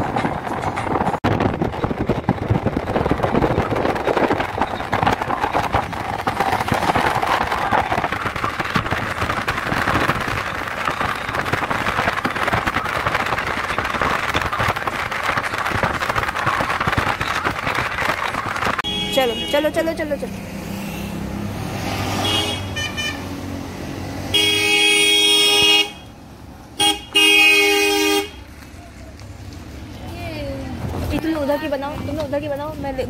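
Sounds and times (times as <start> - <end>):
wind buffeting microphone: 0.0 - 18.9
car road noise: 0.0 - 33.0.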